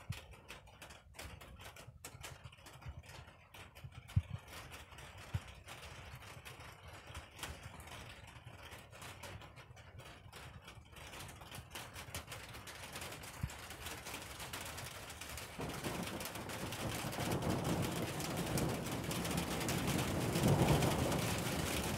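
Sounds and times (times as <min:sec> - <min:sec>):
raindrops tapping: 0:00.0 - 0:21.9
steady rain hiss: 0:13.8 - 0:21.9.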